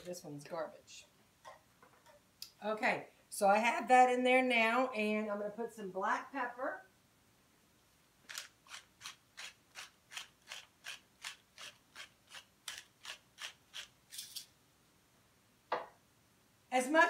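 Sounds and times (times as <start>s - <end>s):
pepper mill grinding: 8.2s - 14.5s.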